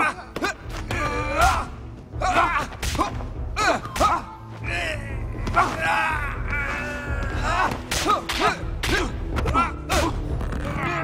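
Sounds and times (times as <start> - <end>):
fighters grunting and shouting: 0.0 - 11.0
punch and block impacts: 2.6 - 3.2, 7.6 - 10.2.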